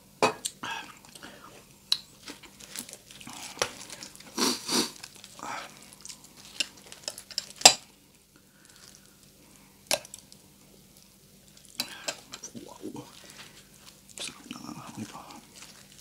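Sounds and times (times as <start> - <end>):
crispy fried pork crackling: 1.1 - 16.0.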